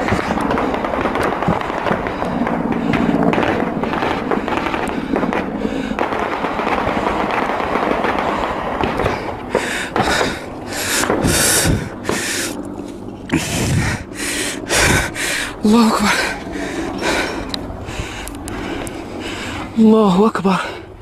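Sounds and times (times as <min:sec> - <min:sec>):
automatic gunfire: 0:00.0 - 0:11.4.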